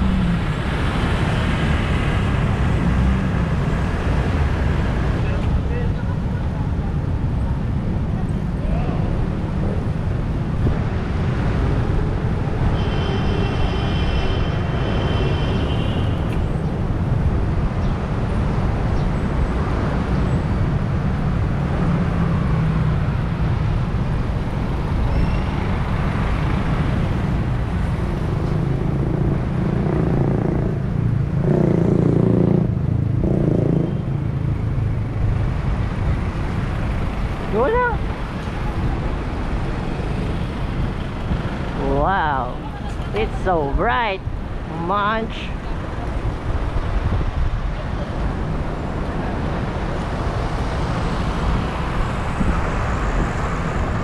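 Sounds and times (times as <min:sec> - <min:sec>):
heavy traffic rumble: 0:00.0 - 0:54.0.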